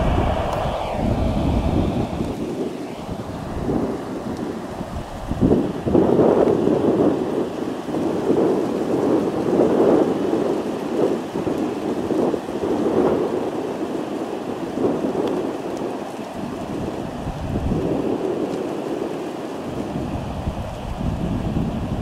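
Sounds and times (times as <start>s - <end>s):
jet engine rumbling: 0.0s - 11.6s.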